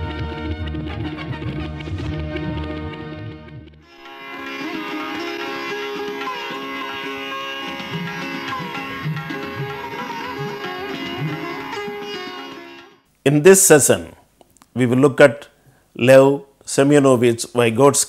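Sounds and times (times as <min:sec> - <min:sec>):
plucked string melody: 0:00.0 - 0:13.0.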